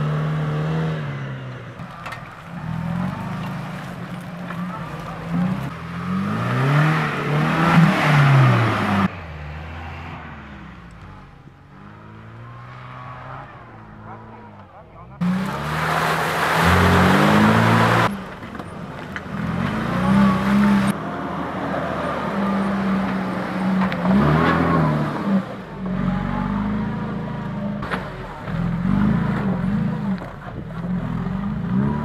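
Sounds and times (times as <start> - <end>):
suv engine revving in mud: 0.0 - 32.0.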